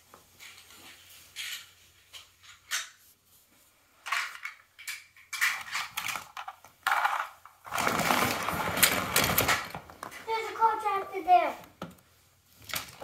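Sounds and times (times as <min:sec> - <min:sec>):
toy cars clattering together: 0:01.4 - 0:03.0, 0:04.0 - 0:10.2.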